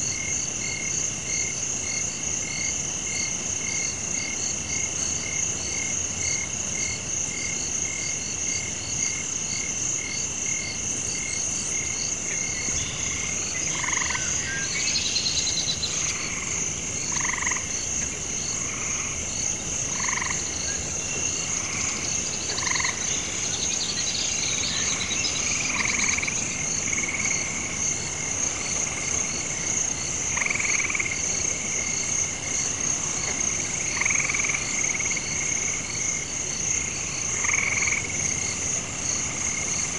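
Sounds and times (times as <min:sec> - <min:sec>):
frogs trilling: 0:07.6 - 0:39.9
loud frog croak: 0:10.0 - 0:39.9.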